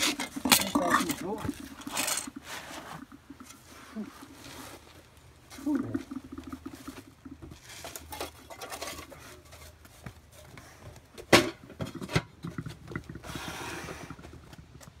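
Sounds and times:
metal lid clanking on metal can: 0.0s - 2.4s, 7.7s - 9.8s.

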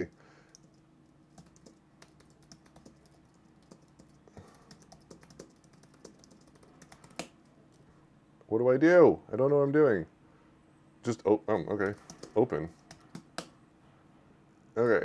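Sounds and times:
typing on a keyboard: 0.5s - 7.8s, 11.8s - 13.5s.

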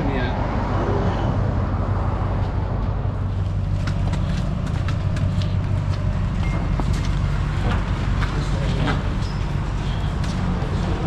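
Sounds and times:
car rolling with clacks and knocks: 2.4s - 11.0s.

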